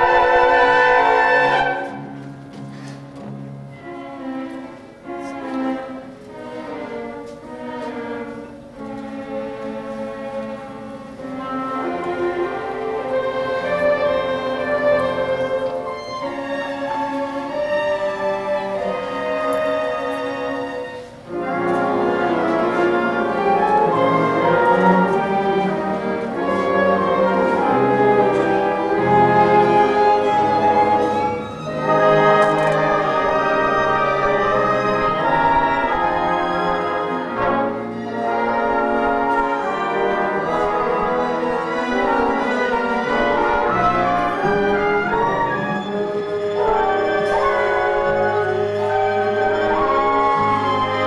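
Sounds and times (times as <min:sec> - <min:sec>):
orchestra with prominent brass: 0:00.0 - 0:51.0.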